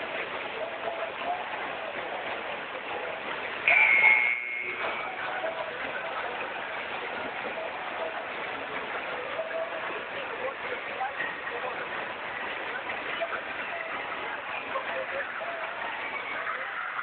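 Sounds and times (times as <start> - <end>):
water rushing over wave machine: 0.0 - 17.0
shrill whistle blast: 3.7 - 5.2.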